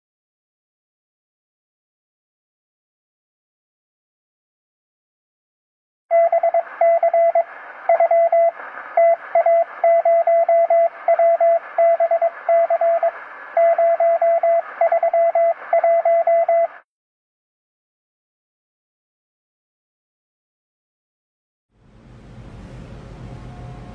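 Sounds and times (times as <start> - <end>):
morse code beeps: 6.1 - 16.8
radio hiss: 6.2 - 16.8.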